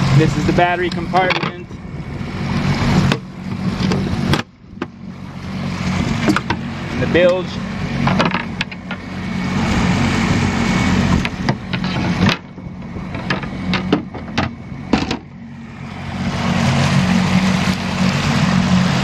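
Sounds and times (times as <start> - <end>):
outboard motor running: 0.0 - 19.0
water rushing along hull: 0.0 - 19.0.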